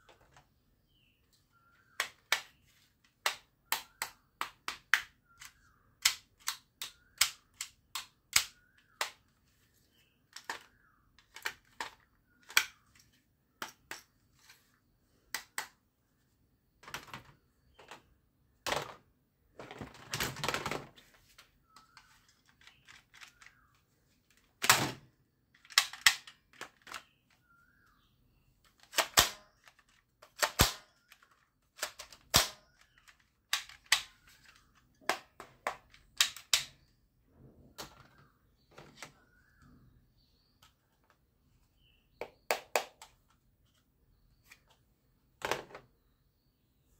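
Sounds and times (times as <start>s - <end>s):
plastic toy guns clicking: 3.2s - 9.2s, 10.3s - 12.8s, 25.6s - 27.2s, 28.8s - 36.8s.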